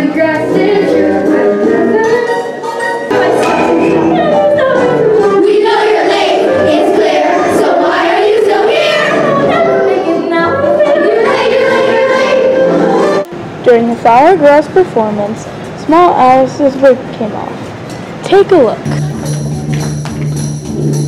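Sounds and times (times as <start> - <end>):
children's chorus singing: 0.0 - 13.2
music: 0.0 - 13.3, 17.8 - 21.0.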